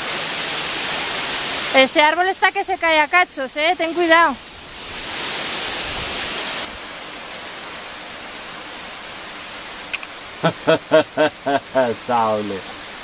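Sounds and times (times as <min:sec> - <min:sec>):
waterfall rushing: 0:00.0 - 0:13.0
burst of hiss: 0:04.7 - 0:06.8.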